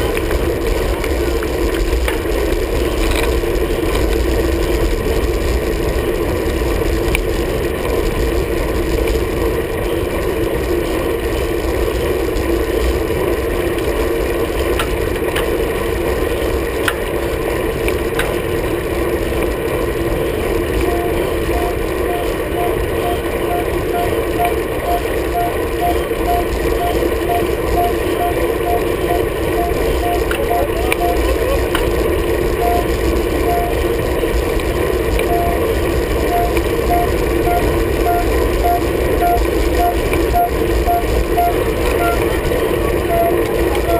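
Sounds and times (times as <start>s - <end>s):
wind and road noise: 0.0s - 43.9s.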